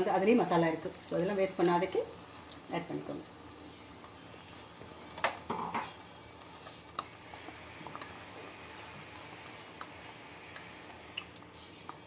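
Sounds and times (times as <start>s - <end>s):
spatula stirring thick gravy: 3.6s - 12.0s.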